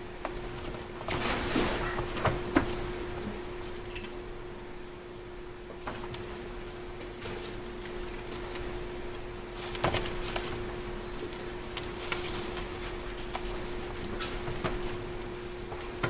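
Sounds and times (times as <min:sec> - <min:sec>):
kittens scrambling on a pad: 0:07.2 - 0:16.0.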